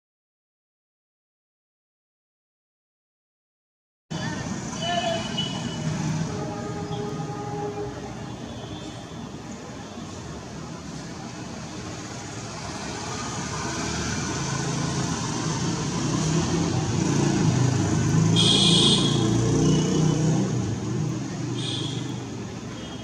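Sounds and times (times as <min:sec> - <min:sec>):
road vehicle passing: 0:04.2 - 0:08.3, 0:09.4 - 0:22.7.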